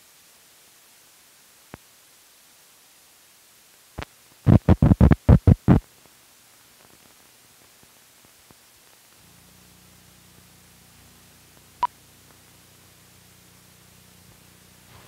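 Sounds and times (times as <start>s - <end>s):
faint low hum: 0.1s - 15.0s
loud thumps: 4.5s - 5.8s.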